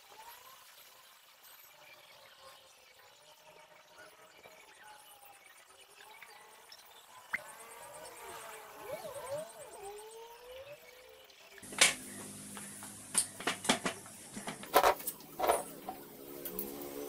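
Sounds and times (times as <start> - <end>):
faint chirping: 1.8 - 13.4
steady hum: 11.6 - 17.0.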